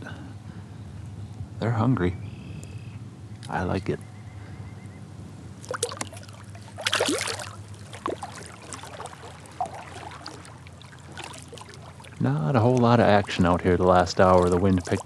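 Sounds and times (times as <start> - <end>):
paddle splashing water: 5.6 - 15.0.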